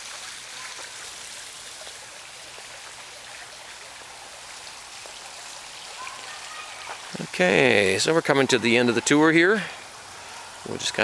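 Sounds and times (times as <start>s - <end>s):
running water patter: 0.0s - 11.0s.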